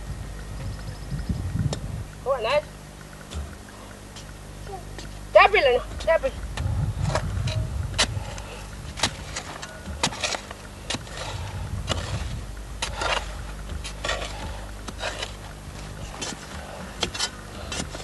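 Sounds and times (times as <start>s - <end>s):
steady low hum: 0.0s - 18.0s
digging bar striking soil: 6.0s - 18.0s.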